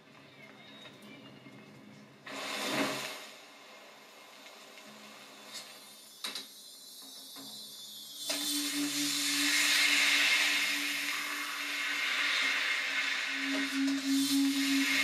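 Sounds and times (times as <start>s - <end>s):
rushing hiss of flame: 2.2s - 6.2s, 8.2s - 15.0s.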